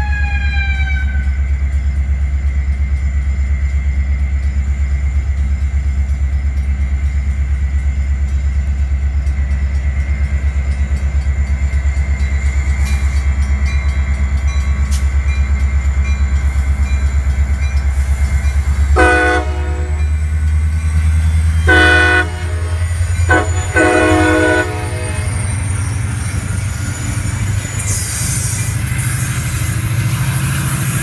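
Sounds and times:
diesel locomotive rumbling: 0:00.0 - 0:31.0
train air horn blasts: 0:18.9 - 0:20.0, 0:21.6 - 0:25.4.

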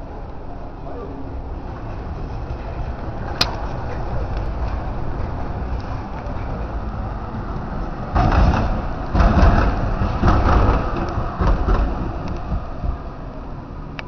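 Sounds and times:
tram rumbling and clattering: 0:00.0 - 0:14.0.

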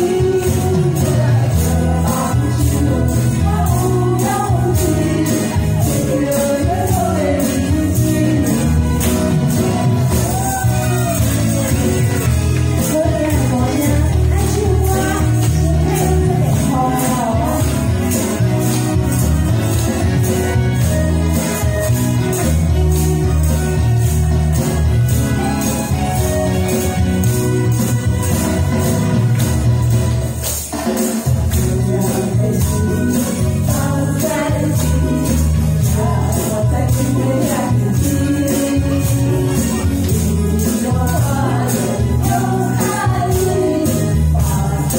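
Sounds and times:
women singing pop duet: 0:00.0 - 0:09.8, 0:12.8 - 0:17.9, 0:31.6 - 0:44.9
amplified backing track with beat: 0:00.0 - 0:44.9
tambourines shaking: 0:00.0 - 0:44.9.

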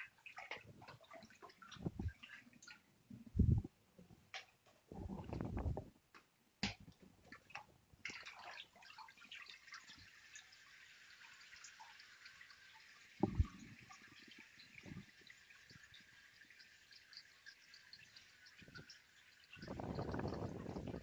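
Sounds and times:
water sloshing in a vat: 0:00.0 - 0:05.9, 0:06.6 - 0:21.0
water trickling and dripping: 0:00.0 - 0:21.0
splash or knock: 0:13.2 - 0:13.6.

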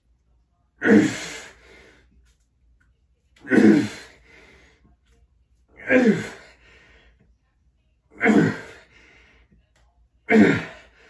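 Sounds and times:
faint breathing: 0:06.3 - 0:07.4, 0:08.6 - 0:09.7.

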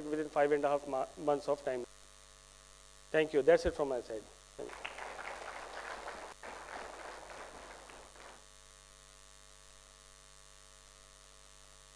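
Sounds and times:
steady electrical hum: 0:00.0 - 0:11.9
audience applauding: 0:04.6 - 0:08.4.

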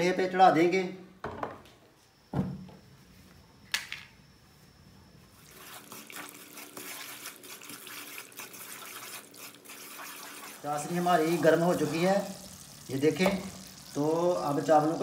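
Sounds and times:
syrup sizzling and bubbling: 0:05.4 - 0:15.0.

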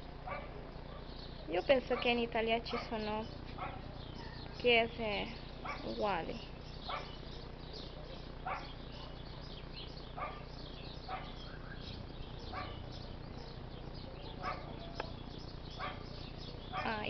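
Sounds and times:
faint bird chirps: 0:00.0 - 0:17.0
low background hum: 0:00.0 - 0:17.0
dog barking: 0:00.2 - 0:01.2, 0:01.9 - 0:04.5, 0:05.6 - 0:06.0, 0:06.8 - 0:07.2, 0:08.4 - 0:09.5, 0:10.1 - 0:11.6, 0:12.4 - 0:15.2, 0:15.8 - 0:17.0.

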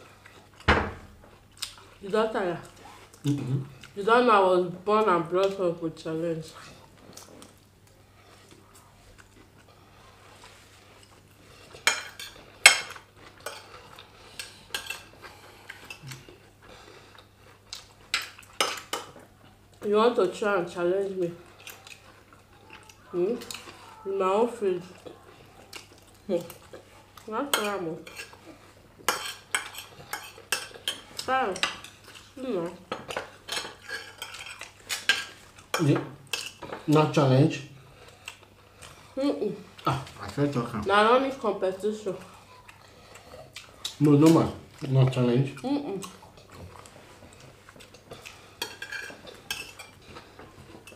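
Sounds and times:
cutlery scraping ceramic plates: 0:11.7 - 0:13.8, 0:27.5 - 0:28.4, 0:29.0 - 0:32.0, 0:32.9 - 0:36.9, 0:48.2 - 0:50.9
forks clinking on plates: 0:48.6 - 0:50.0.

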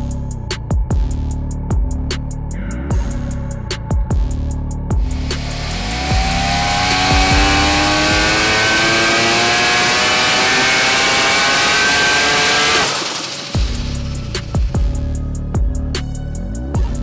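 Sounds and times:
rotary engine revving under load: 0:05.1 - 0:14.7.

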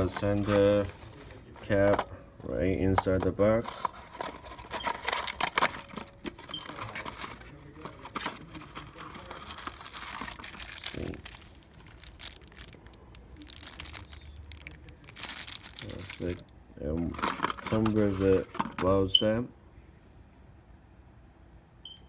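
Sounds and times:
plastic wrapping crinkling: 0:03.6 - 0:16.4.

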